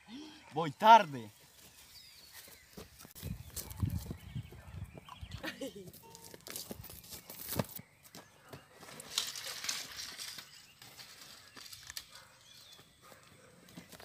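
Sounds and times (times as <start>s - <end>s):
footsteps on dry grass: 1.3s - 4.3s, 6.1s - 9.6s.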